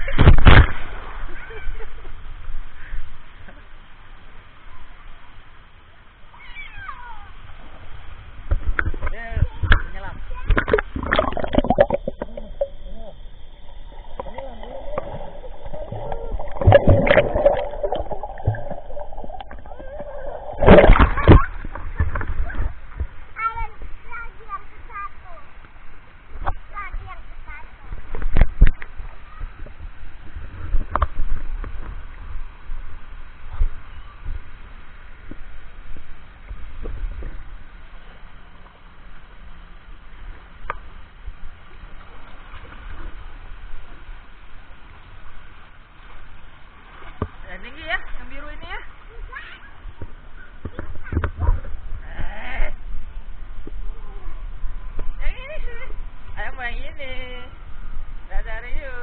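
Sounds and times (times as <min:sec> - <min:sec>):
pool water splashing: 0:00.0 - 0:59.0
low rumble on microphone: 0:07.5 - 0:24.1, 0:48.9 - 0:56.5
churning water underwater: 0:08.4 - 0:23.9.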